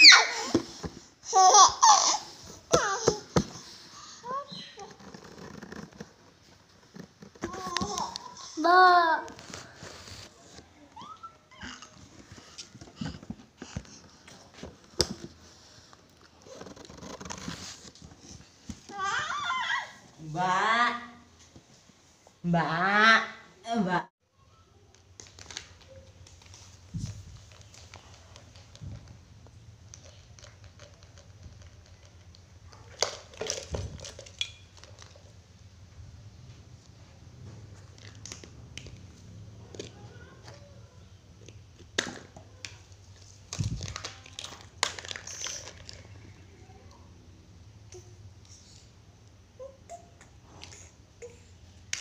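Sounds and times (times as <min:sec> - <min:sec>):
plastic toys clattering on tiles: 0:29.8 - 0:35.4, 0:41.8 - 0:46.4.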